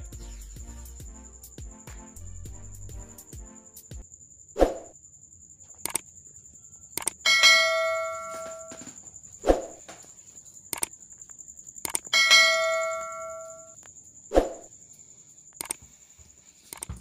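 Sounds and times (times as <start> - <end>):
sharp mouse clicks: 5.8 - 6.0, 7.0 - 7.2, 10.7 - 11.0, 11.8 - 12.1, 15.6 - 15.8, 16.7 - 17.0
thin high whine: 12.3 - 13.8.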